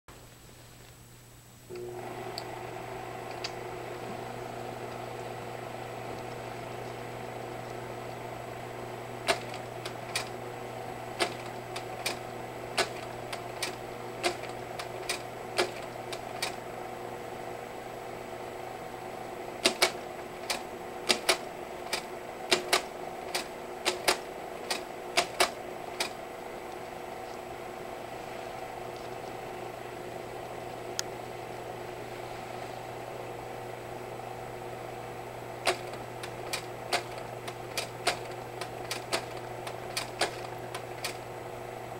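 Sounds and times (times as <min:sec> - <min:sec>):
projector cooling fan hum: 0:00.1 - 0:41.9
slide projector mechanism clicks: 0:35.6 - 0:41.2.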